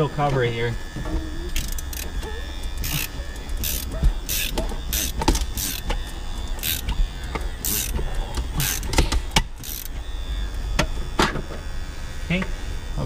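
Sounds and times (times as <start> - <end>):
wire cutting tool rasping: 1.4 - 10.3.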